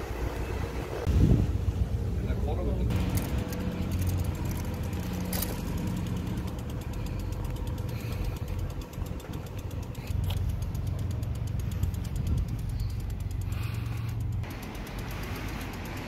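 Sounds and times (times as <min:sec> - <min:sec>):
low engine drone: 0:00.0 - 0:16.0
fast faint ticking: 0:03.0 - 0:16.0.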